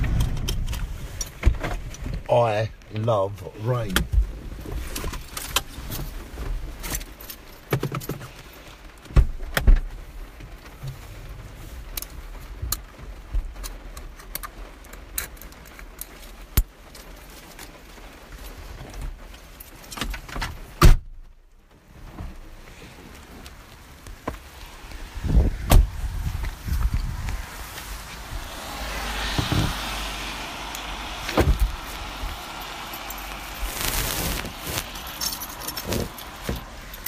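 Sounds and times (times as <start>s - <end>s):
keys jangling: 35.1s - 36.2s.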